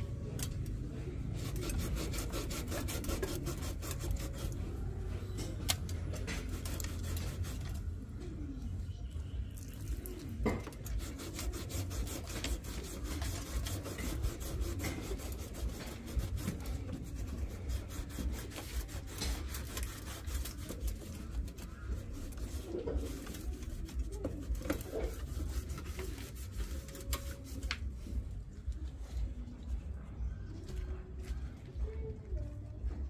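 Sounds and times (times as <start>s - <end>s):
scrubbing rust off steel frame: 1.2s - 4.8s, 10.0s - 27.0s.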